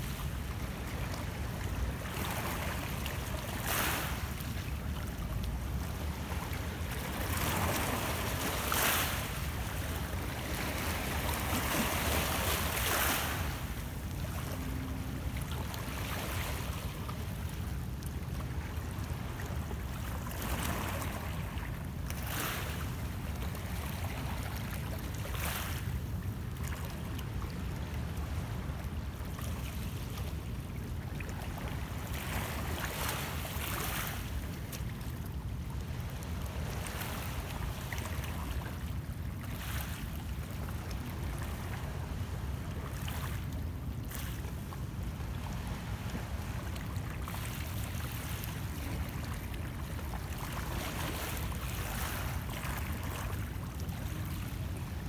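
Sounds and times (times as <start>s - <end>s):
wind rumble on microphone: 0.0s - 39.4s
waves lapping against rocks: 0.0s - 55.0s.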